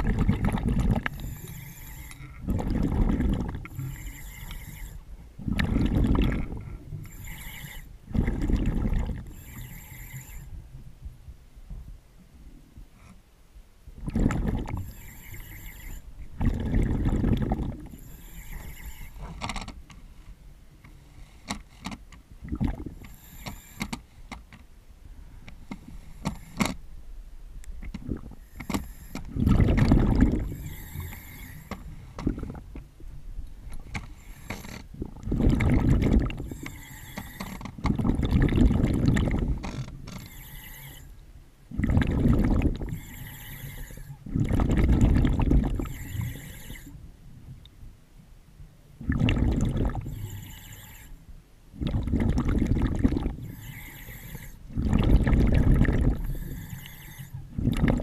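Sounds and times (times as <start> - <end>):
exhaled bubbles underwater: 0.0 - 1.5, 2.3 - 4.6, 5.4 - 9.6, 14.0 - 19.0, 22.4 - 23.0, 28.0 - 28.4, 29.3 - 31.0, 32.2 - 32.9, 34.9 - 36.7, 37.8 - 39.6, 41.7 - 46.9, 49.0 - 51.0, 51.7 - 58.0.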